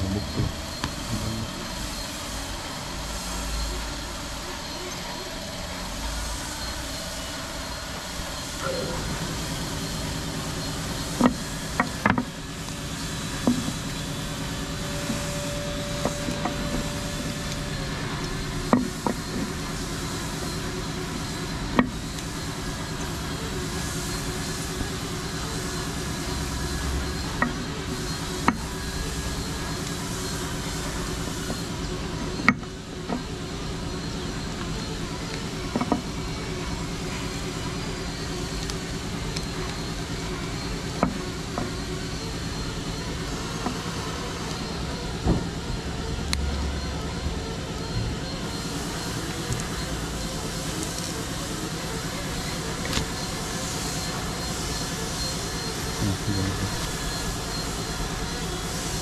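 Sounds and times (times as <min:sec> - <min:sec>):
machine hum: 0:00.0 - 0:59.0.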